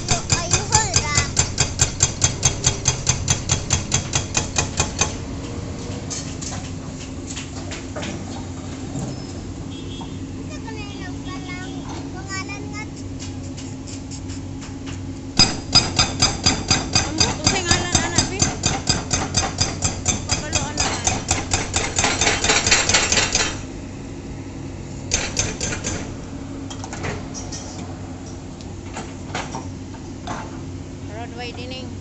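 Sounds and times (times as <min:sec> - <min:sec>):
hydraulic breaker pounding road: 0:00.0 - 0:13.6, 0:15.4 - 0:23.8, 0:25.1 - 0:28.0
engine hum: 0:00.0 - 0:32.0.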